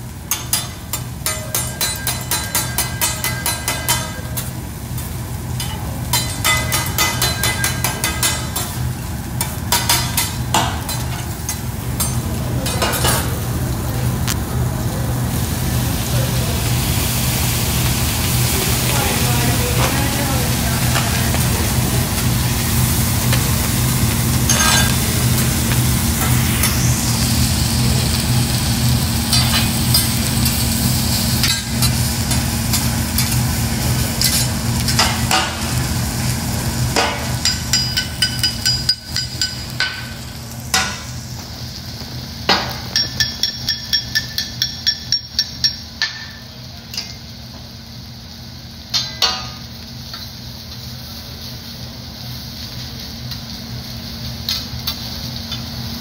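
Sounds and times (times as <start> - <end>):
rice sizzling on a griddle: 0.0 - 56.0
metal spatulas scraping and tapping: 0.3 - 4.2.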